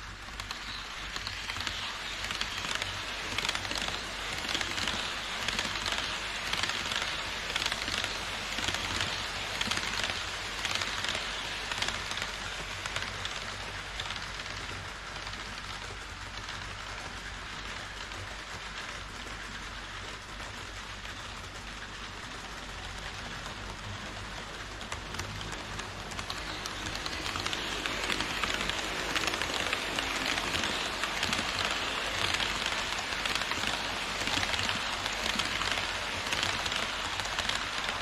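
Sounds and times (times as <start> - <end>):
model train wheels clattering: 0.0 - 38.0
fine rapid clicking: 0.1 - 38.0.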